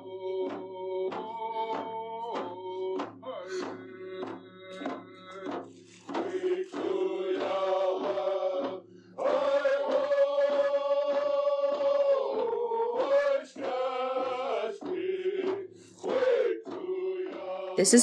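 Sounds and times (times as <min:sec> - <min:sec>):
drum beat: 0:13.6 - 0:18.0
man chanting a song: 0:17.2 - 0:18.0.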